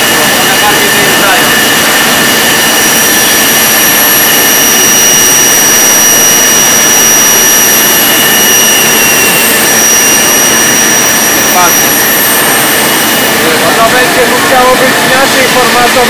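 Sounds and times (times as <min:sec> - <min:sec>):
router spindle high whine: 0:00.0 - 0:16.0.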